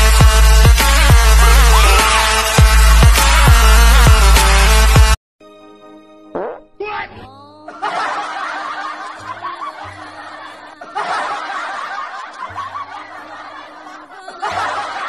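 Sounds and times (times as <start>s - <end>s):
person laughing: 7.5s - 11.9s.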